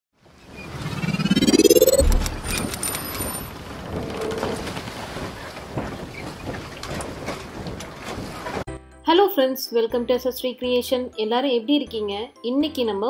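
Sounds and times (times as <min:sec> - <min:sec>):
rising whoosh: 0:00.6 - 0:03.0
deep boom: 0:01.3 - 0:02.7.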